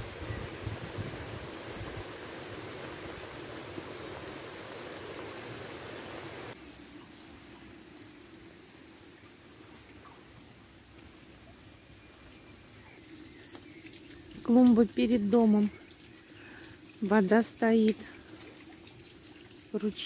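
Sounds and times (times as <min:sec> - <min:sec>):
floodwater rushing: 0:00.0 - 0:06.6
steady rain hiss: 0:00.0 - 0:18.6.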